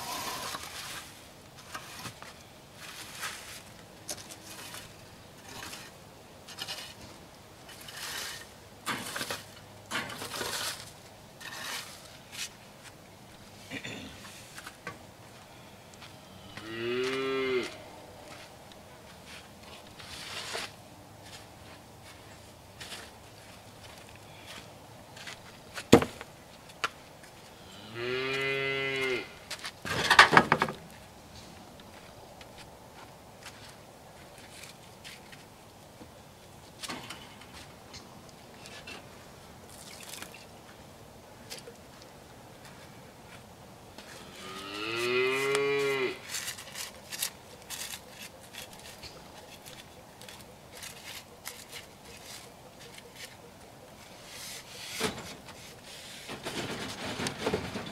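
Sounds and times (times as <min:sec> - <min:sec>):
rake scraping dirt and leaves: 0:00.0 - 0:14.8, 0:15.4 - 0:26.3, 0:42.6 - 0:57.9
cow mooing: 0:16.2 - 0:17.8, 0:27.7 - 0:29.4, 0:44.3 - 0:46.2.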